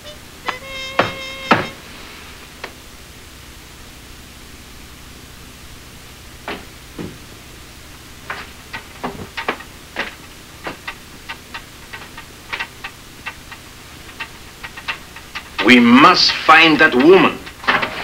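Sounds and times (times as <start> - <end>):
low steady hum: 0.0 - 18.0
sharp clicks and light knocks: 8.3 - 15.7.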